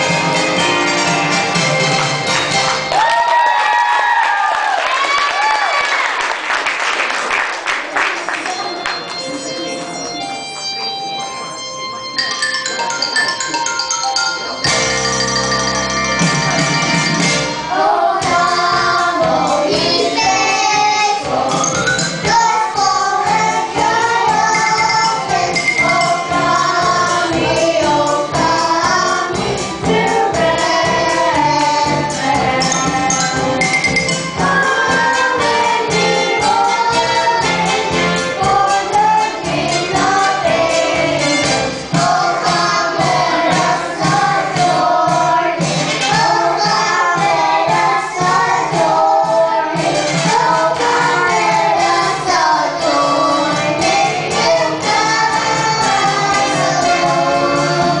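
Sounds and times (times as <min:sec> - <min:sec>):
instrumental accompaniment with beat: 0:00.0 - 0:03.5, 0:08.4 - 0:58.0
children's choir singing: 0:16.3 - 0:58.0.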